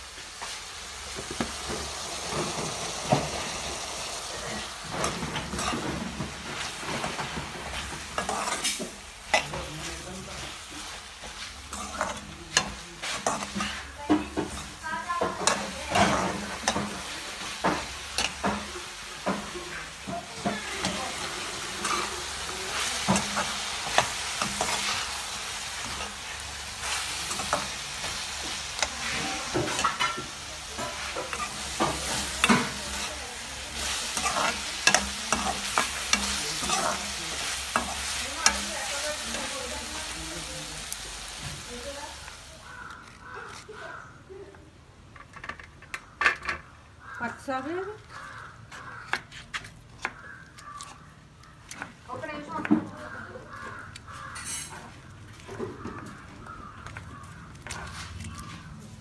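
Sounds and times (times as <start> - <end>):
vegetables sizzling in oil: 0.0 - 44.0, 50.0 - 59.0
metal spatula scraping pan: 4.3 - 10.6, 11.3 - 40.2, 54.1 - 55.0.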